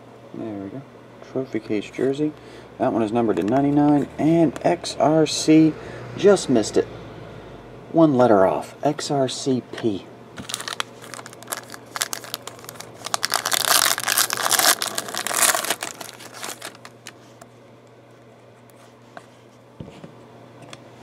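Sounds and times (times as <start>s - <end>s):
foil wrapper crinkling and tearing: 10.4s - 17.4s
handling of cards: 10.4s - 17.5s.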